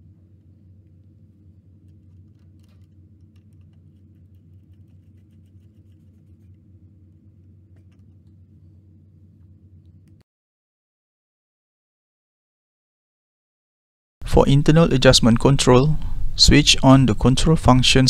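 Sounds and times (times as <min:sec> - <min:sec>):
steady low hum: 0:00.0 - 0:10.2, 0:14.2 - 0:18.0.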